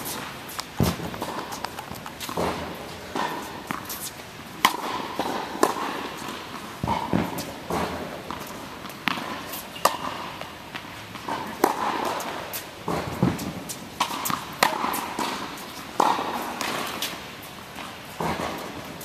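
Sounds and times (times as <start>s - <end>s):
footsteps: 0.0s - 4.8s
tennis balls bouncing on hard court: 0.0s - 19.0s
tennis balls struck by rackets: 0.0s - 19.0s.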